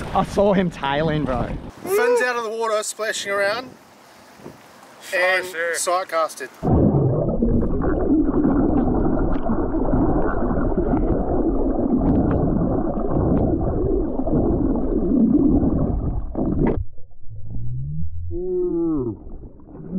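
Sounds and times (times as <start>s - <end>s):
underwater rumble: 6.6s - 19.9s.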